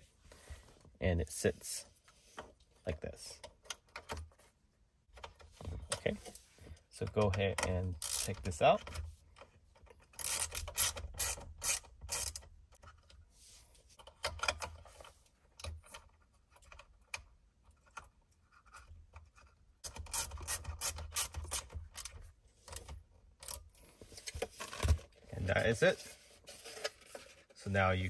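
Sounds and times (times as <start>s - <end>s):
plastic part clicking and rubbing: 7.3s - 13.2s.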